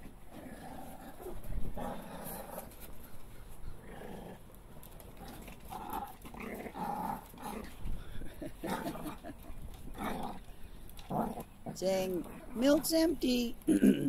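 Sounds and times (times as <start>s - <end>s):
puppies growling and yipping: 0.1s - 13.0s.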